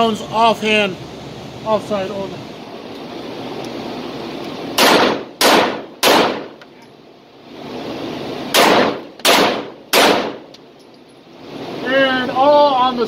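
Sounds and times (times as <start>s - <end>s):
pistol shots with echoing ring: 4.8s - 6.6s, 8.5s - 10.5s.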